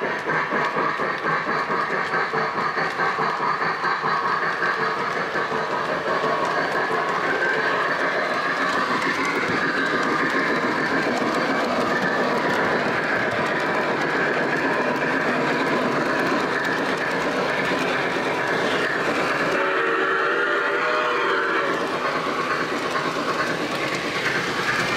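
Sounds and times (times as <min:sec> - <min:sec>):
model train wheels rumbling on rails: 0:00.0 - 0:24.9.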